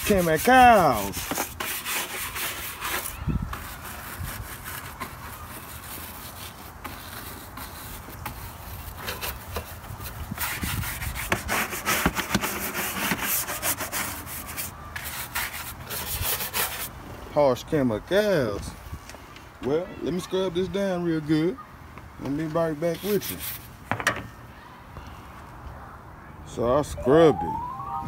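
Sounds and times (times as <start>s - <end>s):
brush scrubbing wet parts: 0.0s - 16.9s.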